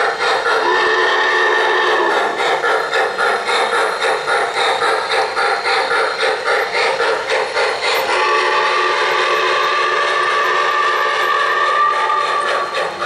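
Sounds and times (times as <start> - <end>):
model steam locomotive chuffing: 0.0 - 13.0
steam whistle: 0.6 - 2.4, 8.0 - 12.8.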